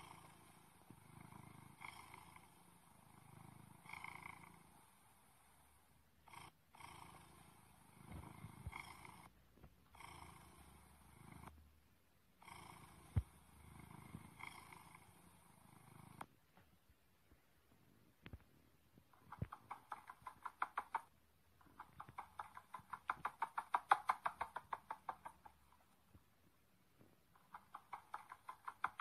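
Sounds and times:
cat purring and growling: 0:00.0 - 0:11.6, 0:12.4 - 0:16.3, 0:19.1 - 0:26.1, 0:27.0 - 0:29.0.

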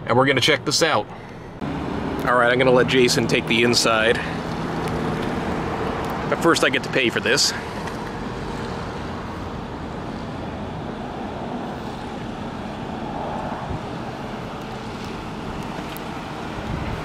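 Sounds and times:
wind on microphone: 0:10.5 - 0:14.2, 0:14.8 - 0:17.0.

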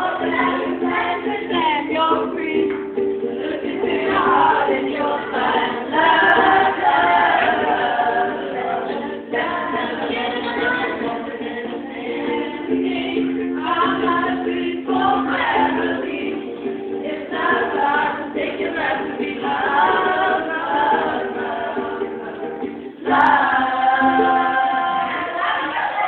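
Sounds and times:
girls singing in harmony: 0:00.0 - 0:26.0.

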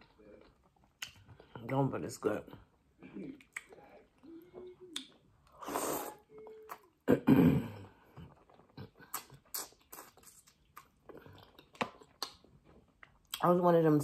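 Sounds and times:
person chewing food: 0:00.0 - 0:01.8, 0:02.7 - 0:07.1, 0:07.7 - 0:13.4
wet mouth clicks and smacks: 0:00.8 - 0:01.6, 0:03.4 - 0:03.9, 0:04.9 - 0:05.2, 0:08.2 - 0:13.5
throaty sound: 0:03.0 - 0:10.4
sharp breath through nose: 0:05.6 - 0:06.2.

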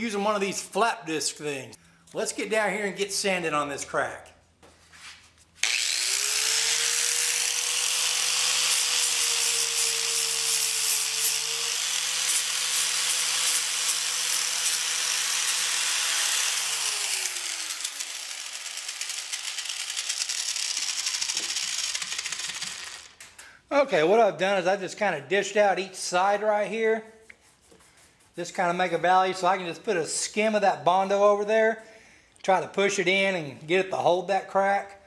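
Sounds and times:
angle grinder grinding fiberglass: 0:05.6 - 0:23.2.

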